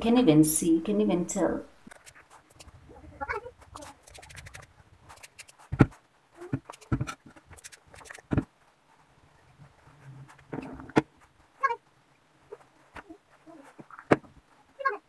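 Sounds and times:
hands rubbing hair crackling: 0:01.9 - 0:02.8, 0:03.5 - 0:05.8, 0:06.6 - 0:08.3
dull thumps: 0:05.6 - 0:07.6, 0:08.2 - 0:08.6, 0:12.9 - 0:14.5.

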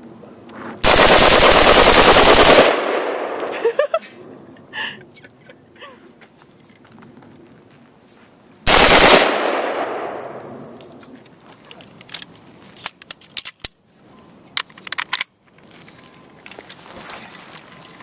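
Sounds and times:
rifle rapid burst of shots: 0:00.8 - 0:03.5, 0:08.7 - 0:10.6
rifle metallic clicks and clacks: 0:08.7 - 0:13.8, 0:14.5 - 0:15.7.

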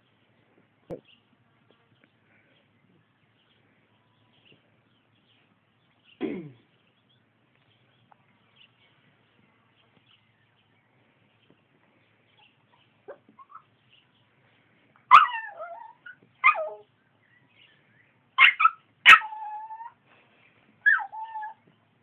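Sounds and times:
puppy yipping and whimpering: 0:13.1 - 0:13.7, 0:15.1 - 0:16.9, 0:18.4 - 0:20.0, 0:20.8 - 0:21.6.

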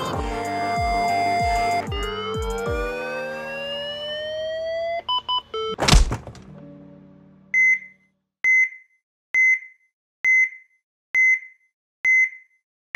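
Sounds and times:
heart monitor beeps: 0:07.6 - 0:12.6.

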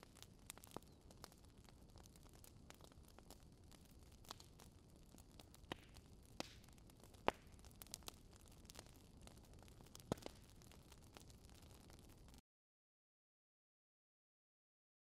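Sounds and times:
crackling clicks: 0:05.3 - 0:12.4.

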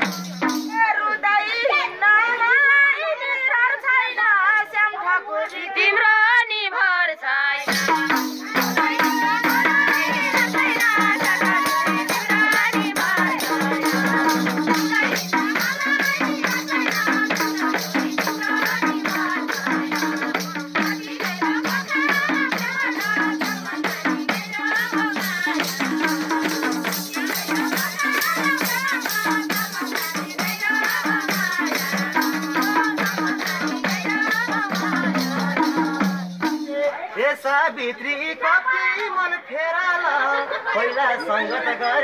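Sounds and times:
hand drum beat: 0:00.0 - 0:00.9, 0:07.6 - 0:36.8
tambourine jingling: 0:00.0 - 0:01.2, 0:07.6 - 0:37.1
women singing: 0:00.0 - 0:42.0.

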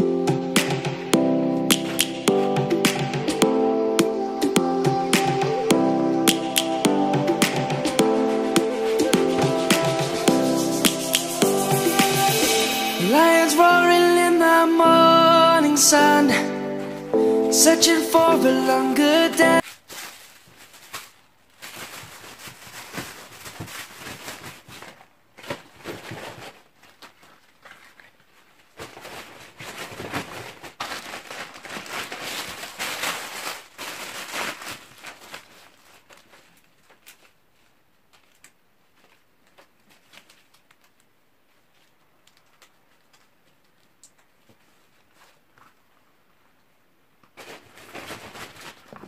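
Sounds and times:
plastic bags rustling and crinkling: 0:19.6 - 0:46.5, 0:47.2 - 0:49.0.

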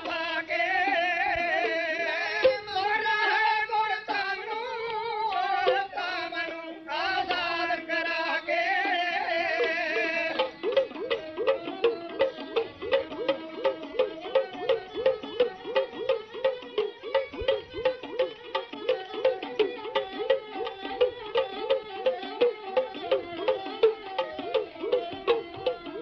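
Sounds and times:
person singing wavering melody: 0:08.3 - 0:26.0
quick even drum beats: 0:09.6 - 0:26.0.

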